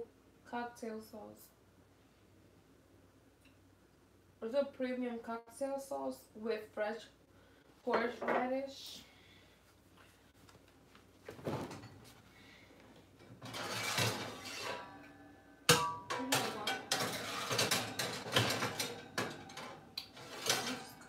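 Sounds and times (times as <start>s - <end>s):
pots and pans clattering: 13.2s - 21.0s.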